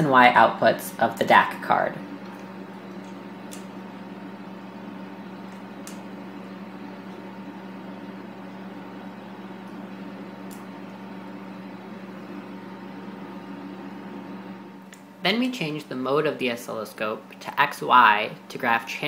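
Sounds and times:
electronics hum: 0.0 - 19.0
faint probe clip clicks: 2.2 - 3.7.

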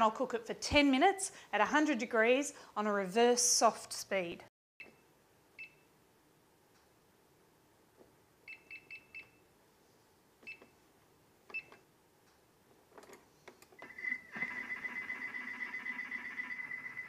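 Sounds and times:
steady high tone with low hum: 13.9 - 17.0.

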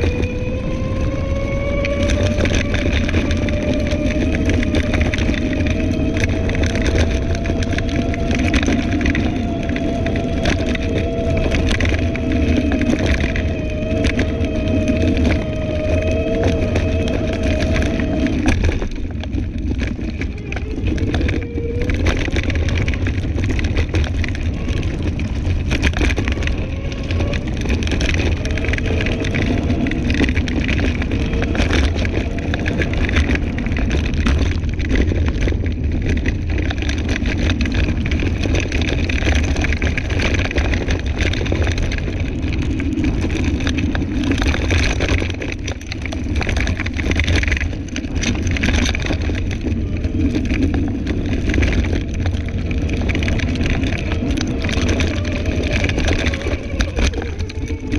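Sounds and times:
rattles and crunches over ground: 0.0 - 57.9
scooter rumbling on dirt trail: 0.0 - 57.9.

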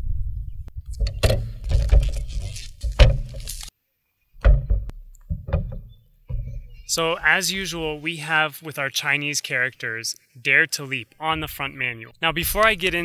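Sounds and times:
cardboard box scraping and rustling: 1.4 - 3.7
box knocking on wooden table: 4.4 - 6.7.

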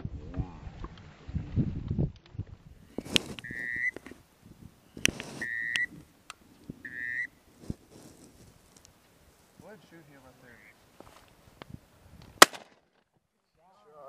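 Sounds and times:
whistle blasts: 3.4 - 4.0, 5.4 - 5.9, 6.8 - 7.3.

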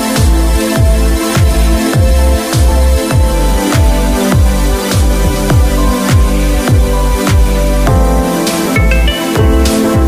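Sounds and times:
deep bass hits: 0.8 - 8.3.

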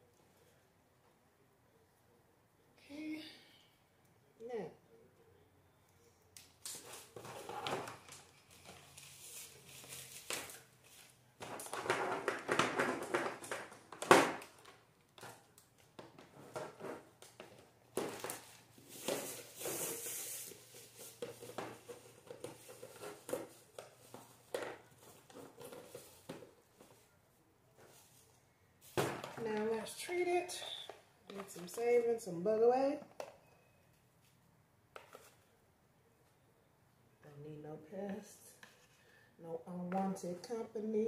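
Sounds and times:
rustling and crinkling: 6.6 - 32.3.

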